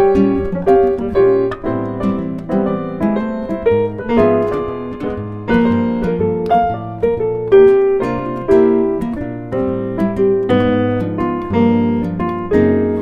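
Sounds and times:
piano music: 0.0 - 13.0.

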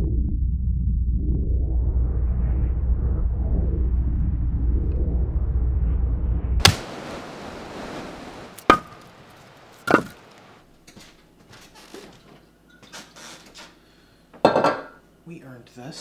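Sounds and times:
low rumbling drone: 0.0 - 8.5.

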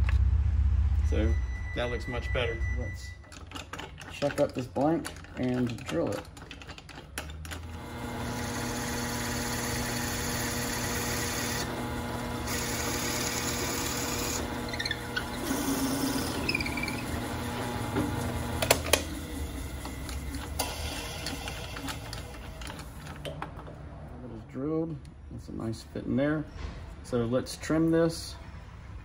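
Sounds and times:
drill press motor hum: 7.2 - 23.2
drill bit cutting hiss: 12.4 - 17.3.

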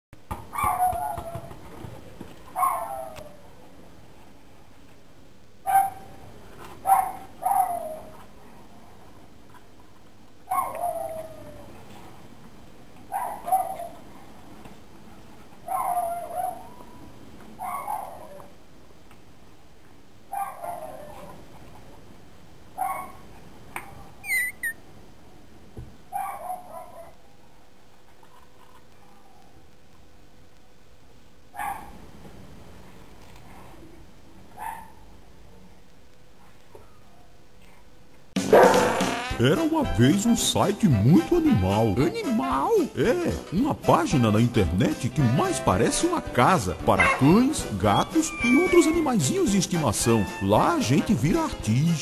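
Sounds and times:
puppy barking: 0.5 - 1.5, 2.6 - 3.4, 5.7 - 6.1, 6.8 - 8.2, 10.5 - 11.3, 13.1 - 14.0, 15.7 - 17.0, 17.6 - 18.5, 20.3 - 21.3, 22.8 - 23.2, 26.1 - 27.2, 31.6 - 32.0, 34.6 - 35.0, 38.5 - 39.1, 47.0 - 47.4
puppies yelping: 10.5 - 11.7, 24.2 - 24.8, 47.0 - 47.4, 48.2 - 49.2
puppy squealing: 24.2 - 24.8, 48.2 - 49.2.

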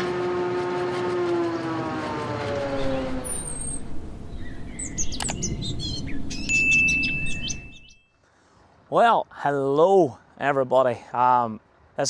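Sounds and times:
tone gliding down in pitch: 0.0 - 8.0
birds chirping: 1.4 - 8.4
sharp clicks: 5.1 - 5.4.

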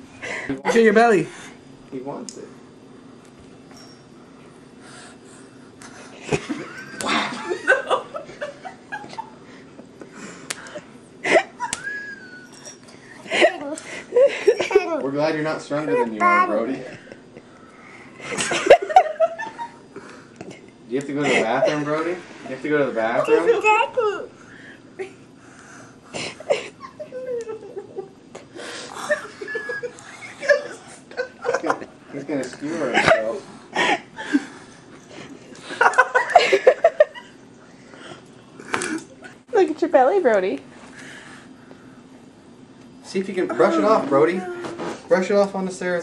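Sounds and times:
toddler vocal sounds: 43.9 - 45.0.

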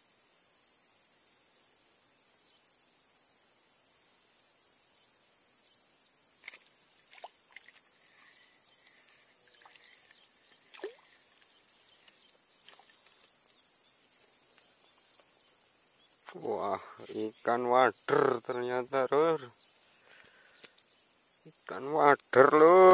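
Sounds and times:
high-pitched insect chorus: 0.0 - 22.9
faint clicks: 20.2 - 20.8.

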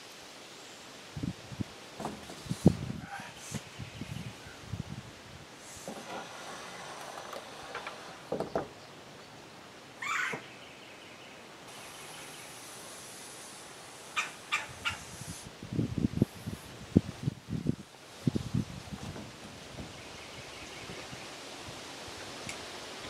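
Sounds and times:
soft knocks: 7.4 - 8.8
bird calling: 8.1 - 12.9, 14.0 - 15.4
short high bird calls: 10.0 - 10.8.

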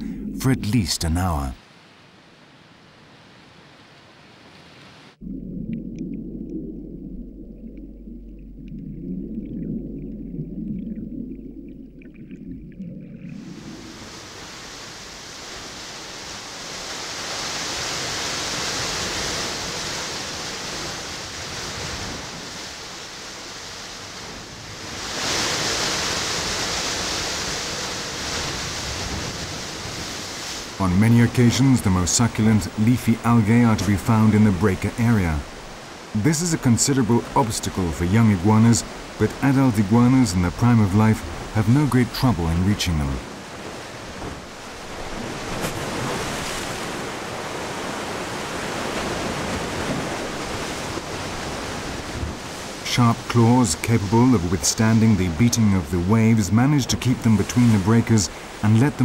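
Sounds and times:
surf breaking on rocky shore: 13.3 - 56.1.

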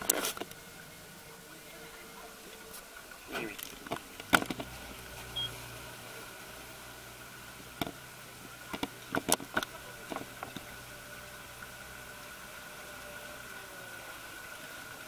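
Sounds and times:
outboard motor running: 0.0 - 15.0.

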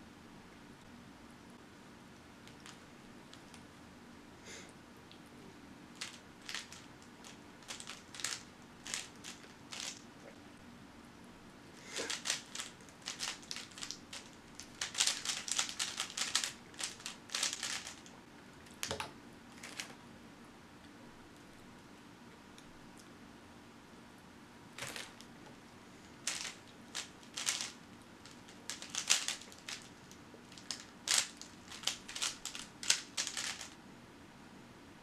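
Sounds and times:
puzzle cube clicking: 12.0 - 18.0, 26.3 - 27.8, 28.7 - 29.9, 30.5 - 33.7.

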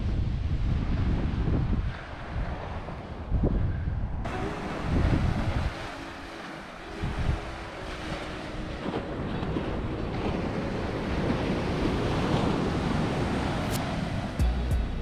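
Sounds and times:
wind on microphone: 0.0 - 15.0
surf breaking on beach: 4.3 - 14.4.

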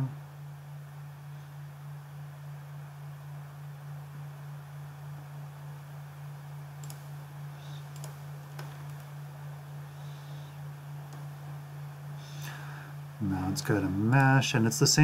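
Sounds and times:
low electrical hum: 0.0 - 15.0
background hiss: 5.6 - 15.0
mouse clicks: 6.8 - 7.1, 7.7 - 9.1.

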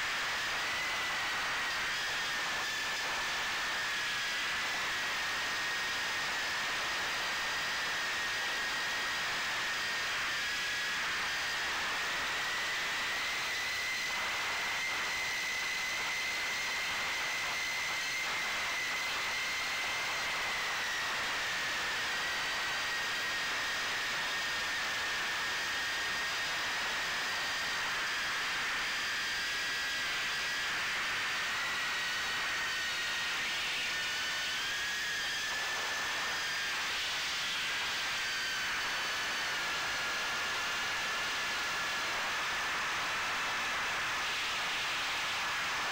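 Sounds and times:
quadcopter motors whining: 0.0 - 45.9.

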